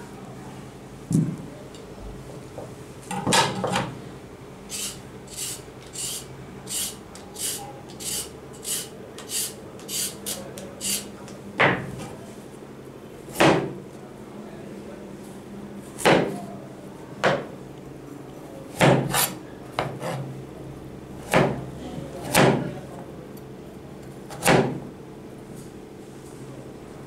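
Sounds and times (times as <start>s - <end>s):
knife chopping on plastic board: 18.8s - 20.2s, 21.2s - 21.6s, 22.2s - 22.7s, 24.3s - 24.8s.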